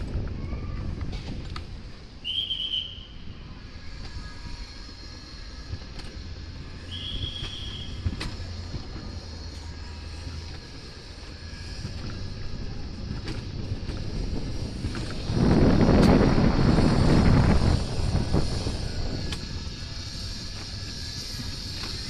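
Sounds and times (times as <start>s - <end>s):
coaster sled rumbling on metal track: 0.0s - 22.0s.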